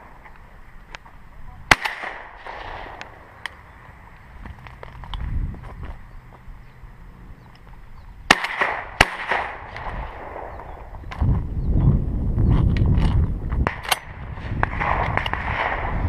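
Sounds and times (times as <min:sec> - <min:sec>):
low rumbling noise: 0:00.0 - 0:16.0
shotgun shots: 0:01.7 - 0:03.3, 0:08.3 - 0:10.8, 0:13.6 - 0:16.0.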